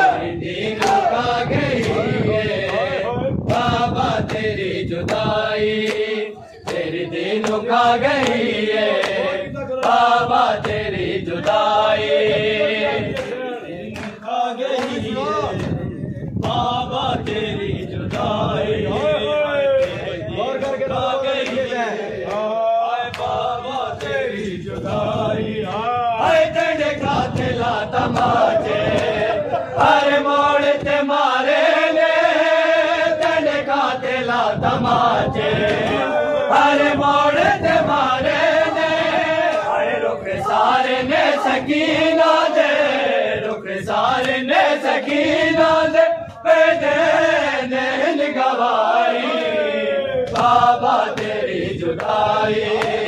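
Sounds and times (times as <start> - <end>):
men chanting a lament: 0.0 - 53.0
hands slapping chests: 0.8 - 1.1, 14.0 - 14.2, 14.8 - 15.0, 50.3 - 51.4, 52.8 - 53.0.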